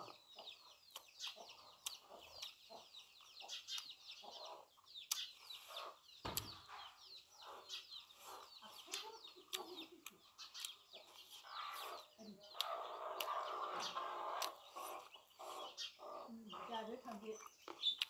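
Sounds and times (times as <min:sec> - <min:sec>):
chickens clucking: 0:00.0 - 0:18.0
small birds chirping: 0:00.0 - 0:18.0.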